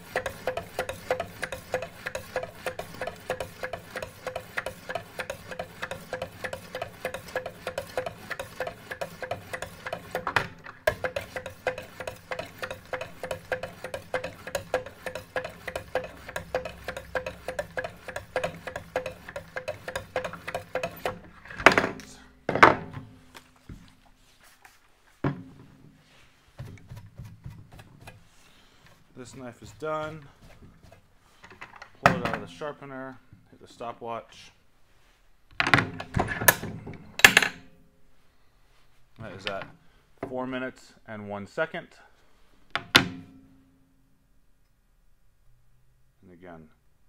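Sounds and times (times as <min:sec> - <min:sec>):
stones scraping knife blade: 0:00.0 - 0:21.2.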